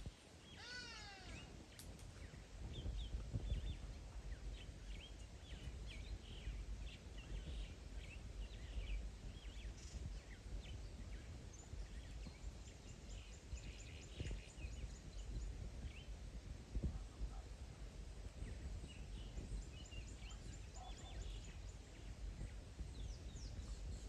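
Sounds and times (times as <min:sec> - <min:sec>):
birds chirping and calling: 0:00.5 - 0:01.6
steady low rumble: 0:01.2 - 0:24.0.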